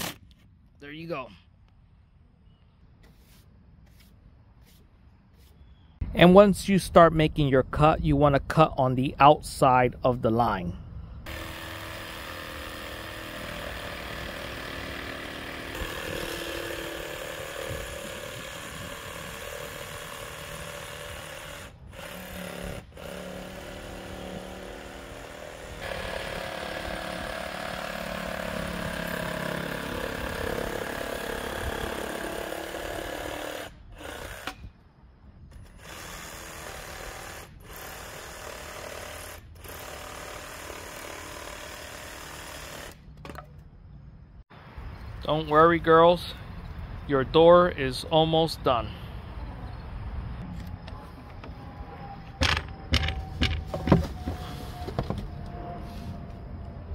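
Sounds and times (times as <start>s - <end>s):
jigsaw cutting through plywood: 0.0s - 0.2s, 11.3s - 34.6s.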